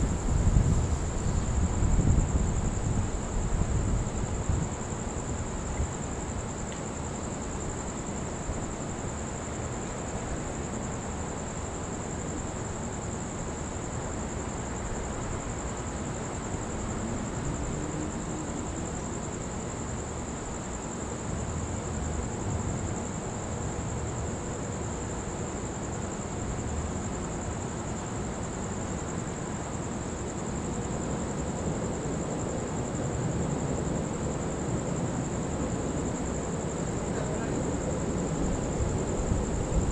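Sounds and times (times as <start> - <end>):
low outdoor storm rumble: 0.0 - 12.5, 13.9 - 27.6, 29.6 - 39.9.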